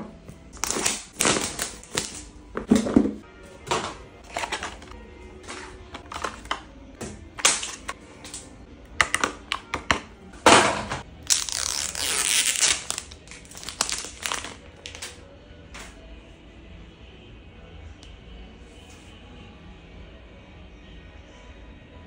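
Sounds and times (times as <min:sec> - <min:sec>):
plastic film peeling rip: 0:00.6 - 0:02.3, 0:11.2 - 0:15.2
plastic packaging crinkling: 0:00.6 - 0:03.0, 0:03.7 - 0:06.7, 0:11.2 - 0:15.2.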